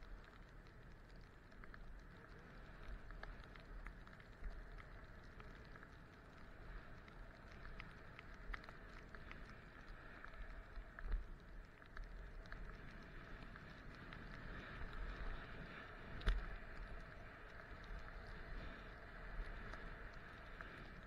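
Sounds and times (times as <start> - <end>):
small clicks: 0.0 - 21.0
wind rumble on microphone: 0.0 - 21.0
skis sliding over snow: 2.0 - 21.0.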